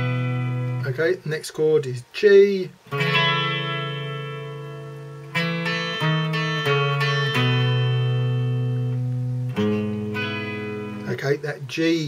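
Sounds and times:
electric guitar chord ringing: 0:00.0 - 0:00.9, 0:02.9 - 0:11.2
picked guitar notes descending: 0:00.0 - 0:01.0, 0:02.7 - 0:12.0.

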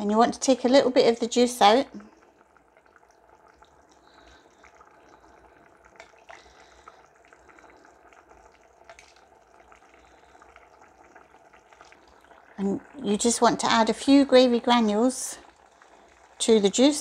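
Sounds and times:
liquid pouring into jug: 0:02.2 - 0:13.1.

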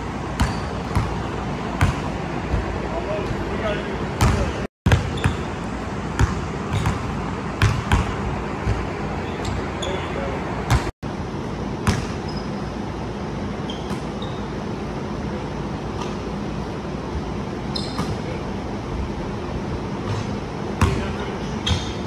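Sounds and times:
basketball bouncing on hardwood floor: 0:04.2 - 0:05.5, 0:06.2 - 0:08.8.

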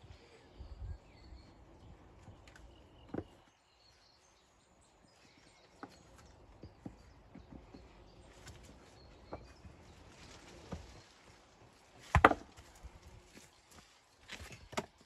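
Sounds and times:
faint bird chirps: 0:00.0 - 0:11.1
stones knocking together: 0:12.0 - 0:12.8.

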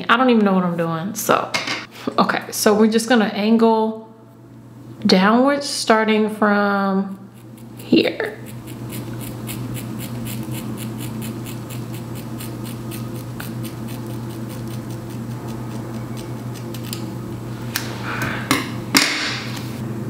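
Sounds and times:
scissors snipping hair: 0:07.1 - 0:17.1.

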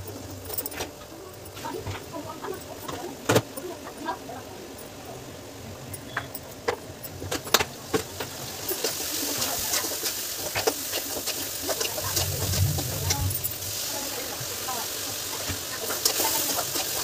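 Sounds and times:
steady hiss: 0:07.5 - 0:17.0.

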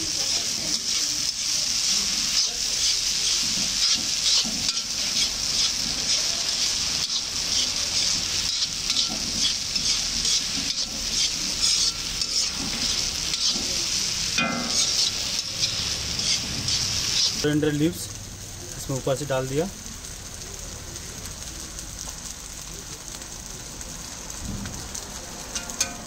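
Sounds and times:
rice and vegetables sizzling in wok: 0:00.0 - 0:26.0
metal spatula scraping a wok: 0:00.3 - 0:17.5, 0:25.5 - 0:26.0.

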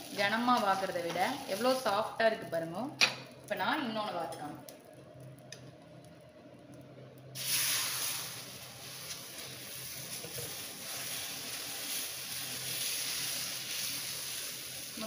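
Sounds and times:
batter sizzling on hot pan: 0:00.0 - 0:03.4, 0:07.2 - 0:15.0.

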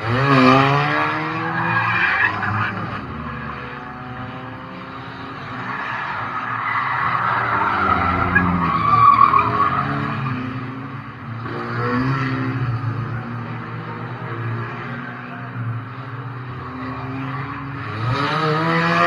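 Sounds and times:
tyres skidding on track: 0:00.0 - 0:13.7
race car engine revving: 0:16.5 - 0:19.0.

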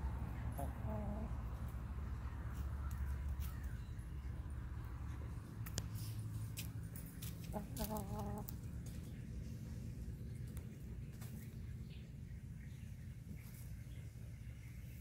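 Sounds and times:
hen clucking: 0:00.4 - 0:01.6, 0:07.3 - 0:09.2.

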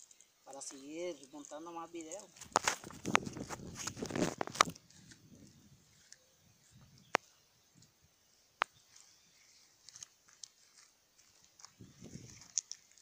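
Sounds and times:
faint ticks: 0:00.0 - 0:03.2.

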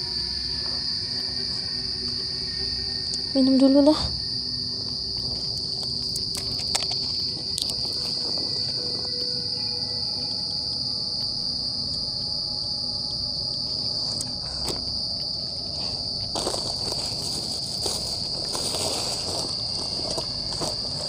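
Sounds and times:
night insects chirping: 0:00.0 - 0:21.0
bag being rummaged through: 0:16.3 - 0:21.0.

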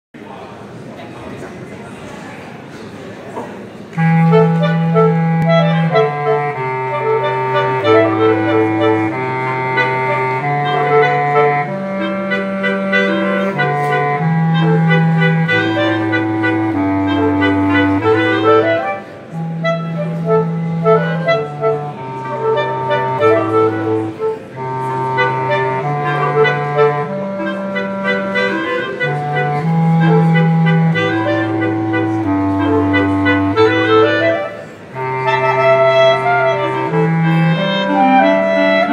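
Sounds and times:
clarinet trio playing: 0:03.9 - 0:38.9
low bass clarinet line: 0:04.0 - 0:38.9.

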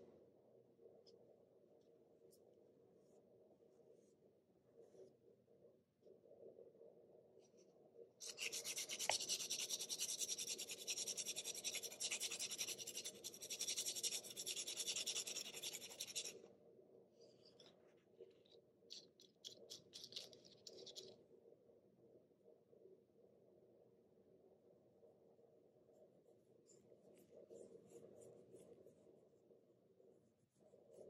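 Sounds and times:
pencil lead rasping on sanding block: 0:08.2 - 0:16.3.

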